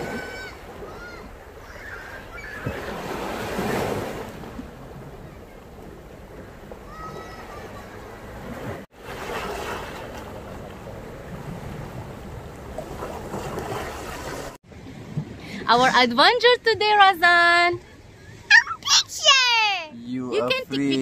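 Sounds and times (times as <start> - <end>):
rushing water: 0.0 - 16.1.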